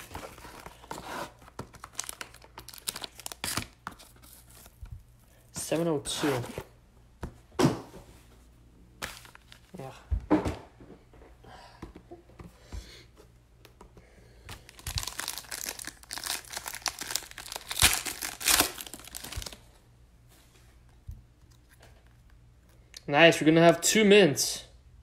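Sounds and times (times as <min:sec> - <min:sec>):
foil wrapper tearing and crinkling: 0:01.7 - 0:04.8, 0:14.6 - 0:19.7.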